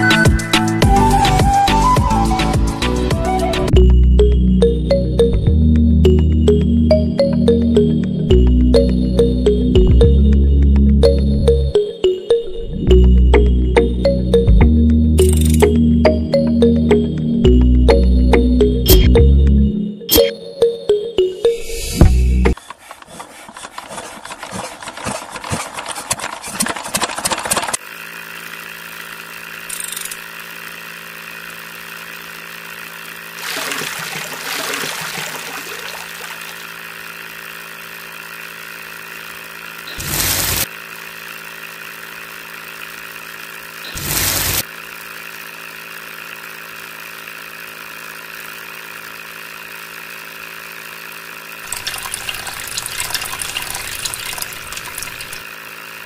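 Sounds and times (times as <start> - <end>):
small electric motor humming: 15.1 - 15.9, 27.7 - 56.0
rough rasping noise: 22.5 - 27.8
sand pouring into spinning drum: 27.8 - 56.0.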